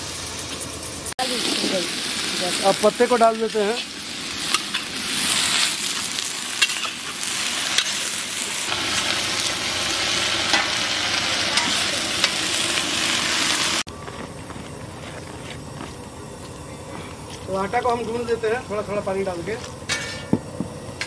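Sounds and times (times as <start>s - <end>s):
greens sizzling in hot oil: 0.0s - 21.0s.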